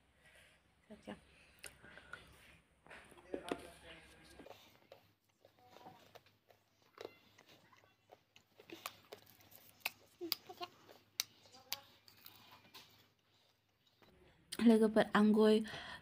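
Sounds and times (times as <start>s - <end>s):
person chewing crunchy food: 4.4s - 14.1s.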